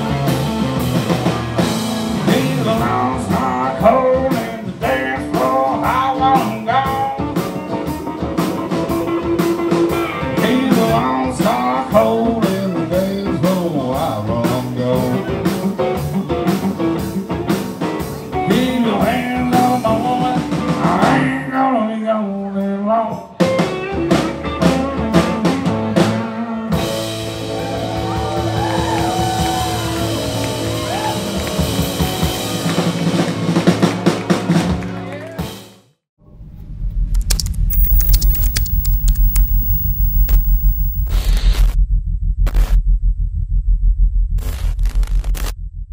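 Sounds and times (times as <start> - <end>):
drums: 0.0 - 21.7, 22.4 - 35.8
man singing: 2.2 - 7.2, 10.4 - 15.3, 18.5 - 23.2
electric guitar: 37.3 - 41.2.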